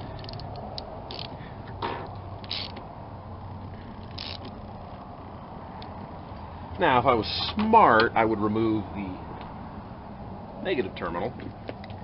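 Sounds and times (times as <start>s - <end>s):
socket ratchet clicking: 0.1s - 1.4s, 2.1s - 2.8s, 4.0s - 4.7s.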